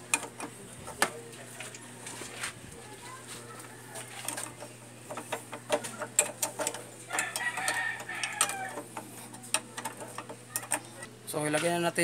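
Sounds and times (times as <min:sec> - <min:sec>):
clicks and taps of tools: 0:00.0 - 0:01.8, 0:04.0 - 0:11.7.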